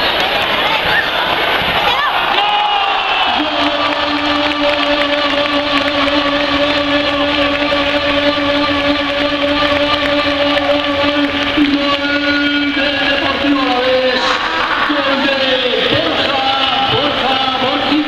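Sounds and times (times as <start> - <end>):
football crowd celebrating: 0.0 - 18.0
stadium horn long note: 2.8 - 17.8.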